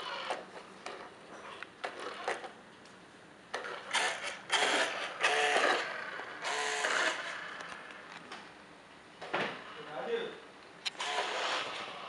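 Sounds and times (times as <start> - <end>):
toy car motor whirring: 0.0 - 0.4, 3.6 - 7.9, 10.9 - 12.0.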